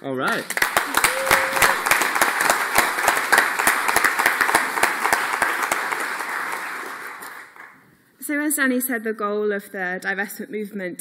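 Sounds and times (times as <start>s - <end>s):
audience applauding: 0.2s - 7.8s.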